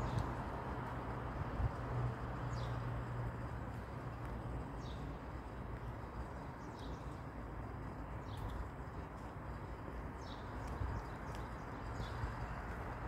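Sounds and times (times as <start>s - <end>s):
low outdoor background noise: 0.0s - 13.0s.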